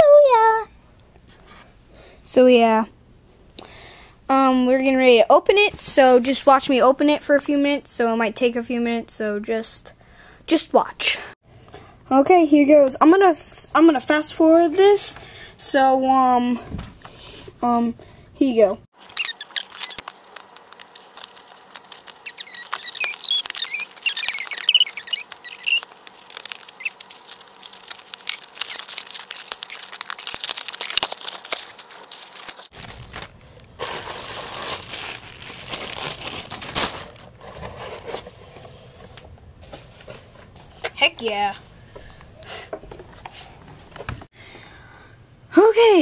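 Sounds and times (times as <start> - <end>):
tape and cardboard tearing: 19.0 - 32.9
cardboard crinkling and crackling: 19.0 - 38.4.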